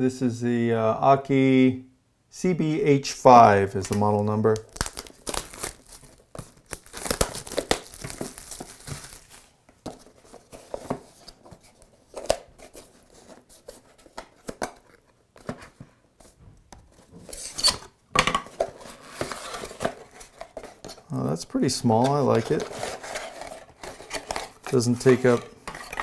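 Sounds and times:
plastic wrap crinkling and tearing: 3.9s - 9.6s.

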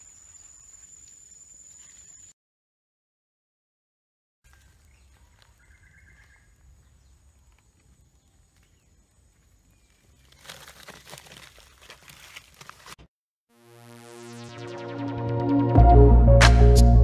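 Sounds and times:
rustling and scratching: 10.2s - 13.0s.

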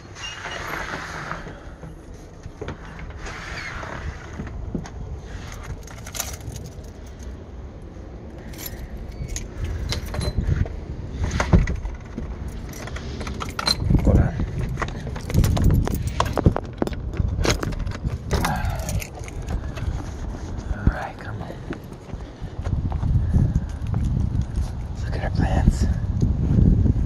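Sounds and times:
low rumble: 4.2s - 27.0s
metal jingling and clinking: 5.8s - 7.4s, 8.4s - 10.5s, 12.4s - 19.6s.

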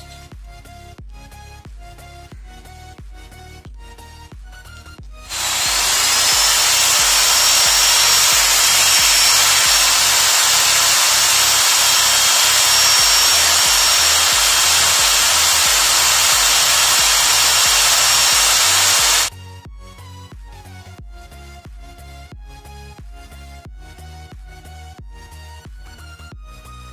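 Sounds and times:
quiet background music: 0.0s - 5.3s
electric drill boring into wood: 5.3s - 19.3s.

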